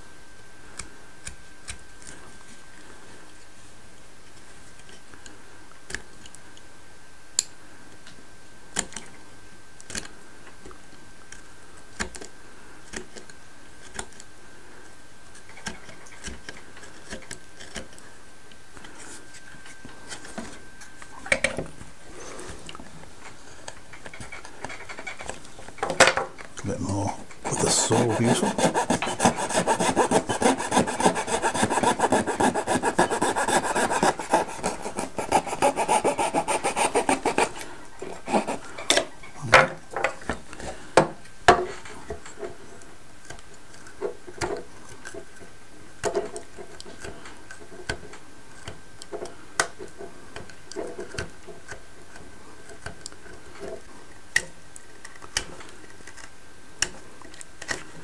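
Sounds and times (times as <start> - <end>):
knife scraping wood: 26.8 - 38.8
file rasping wood: 27.4 - 38.7.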